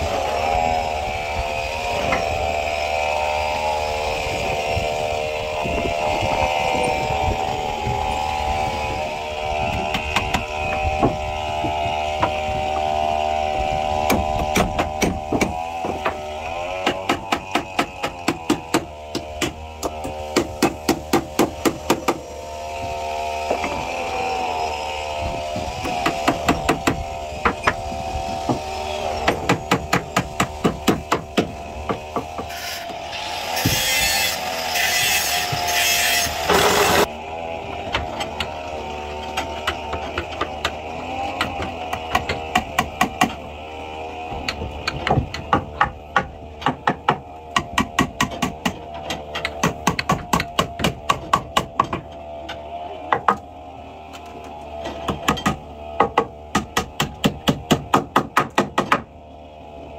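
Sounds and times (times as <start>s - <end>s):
hammer striking wooden block: 14.1s - 16.2s, 44.5s - 52.1s, 55.0s - 59.1s.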